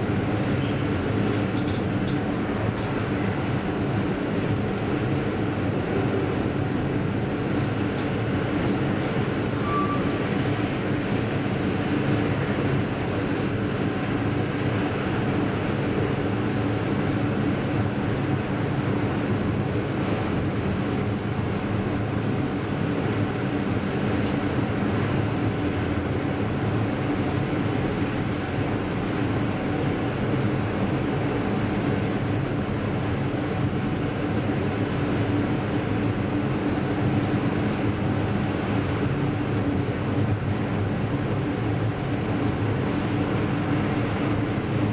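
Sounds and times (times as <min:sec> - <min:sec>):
elevator running with low hum: 0:00.0 - 0:44.9.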